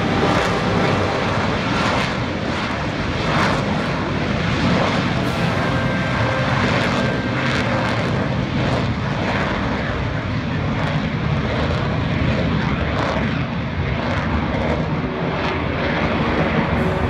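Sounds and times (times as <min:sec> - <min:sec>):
fighter jet roar: 0:00.0 - 0:17.0.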